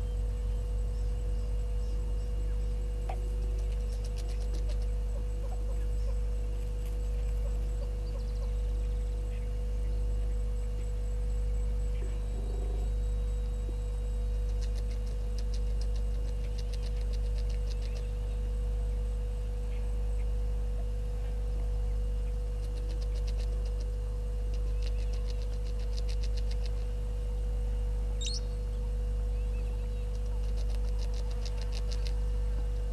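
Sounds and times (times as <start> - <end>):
low electrical mains hum: 0.0 - 32.9
short high bird chirp: 28.2 - 28.6.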